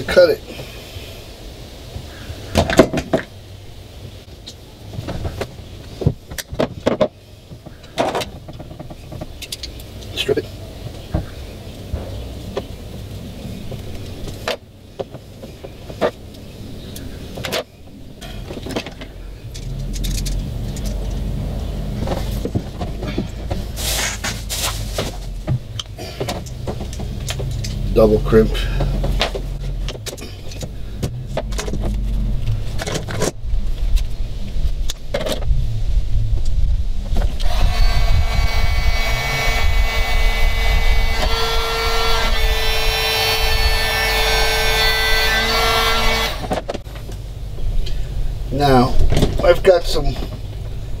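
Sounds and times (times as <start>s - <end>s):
low background rumble: 7.1s - 51.0s
tools and cable clicks and knocks: 17.4s - 21.3s, 25.5s - 27.8s, 28.8s - 34.0s.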